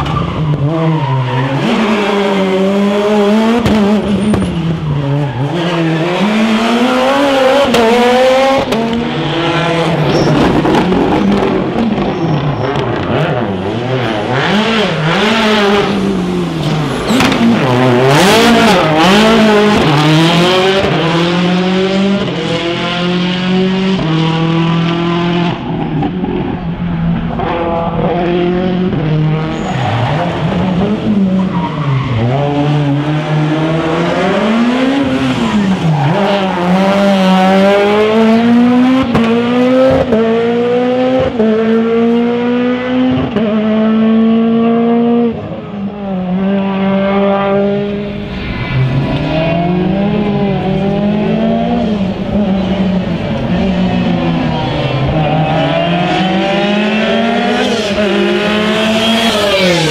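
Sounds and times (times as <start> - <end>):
rally car engine revving: 0.0 - 59.9.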